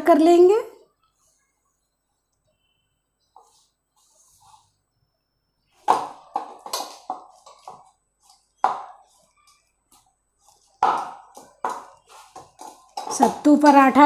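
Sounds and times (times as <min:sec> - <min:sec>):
dough kneaded in metal bowl: 0:05.7 - 0:14.0.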